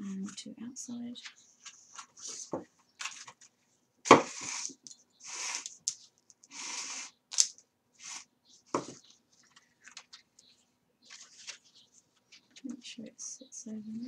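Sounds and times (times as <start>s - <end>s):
paper rustling: 1.2s - 13.0s
thread rasping through paper: 4.1s - 12.8s.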